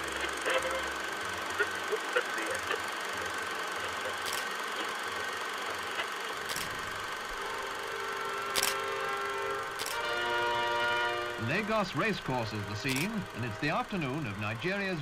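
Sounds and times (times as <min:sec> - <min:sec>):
film soundtrack hiss and crackle: 0:00.0 - 0:15.0
sharp clicks: 0:03.8 - 0:04.9, 0:05.6 - 0:06.9, 0:08.5 - 0:08.8, 0:09.8 - 0:10.0, 0:12.8 - 0:13.5.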